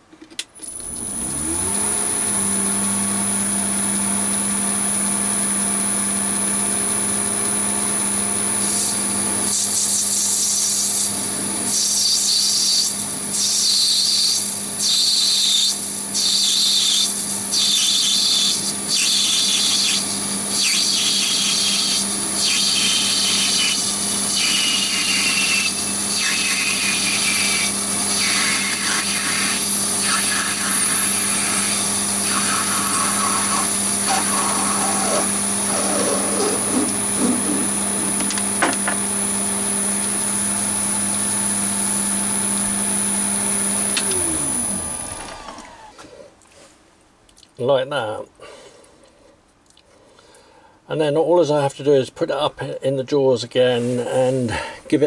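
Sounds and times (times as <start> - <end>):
lathe motor humming and whining: 0.7 - 46.0
cutting tool hissing on brass: 11.7 - 38.2.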